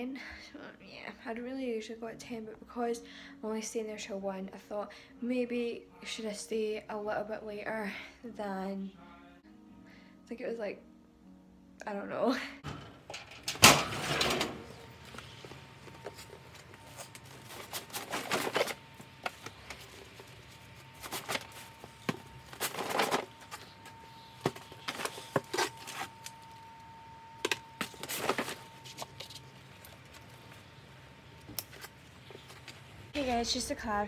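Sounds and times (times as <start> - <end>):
faint high whine: 12.7 - 33.9
gear and bag rustling: 14.6 - 26.8.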